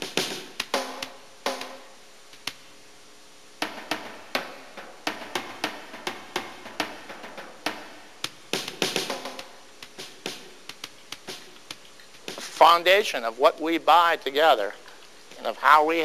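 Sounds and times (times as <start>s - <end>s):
drum hits: 0.0s - 1.9s, 3.6s - 11.6s.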